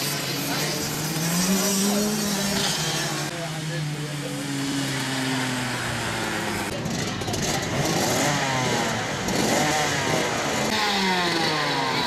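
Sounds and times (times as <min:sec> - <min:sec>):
kart engines revving and passing: 0:00.0 - 0:12.0.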